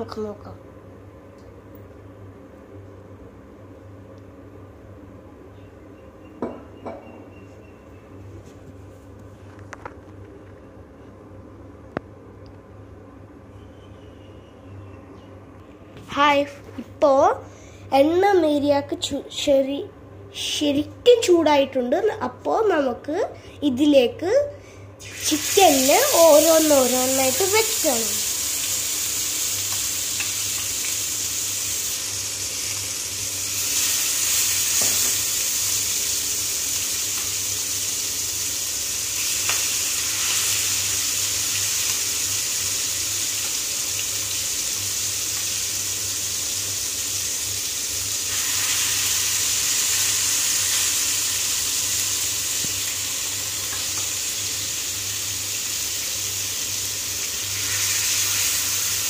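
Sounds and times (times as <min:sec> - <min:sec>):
chicken sizzling in hot oil: 0:25.0 - 0:59.0.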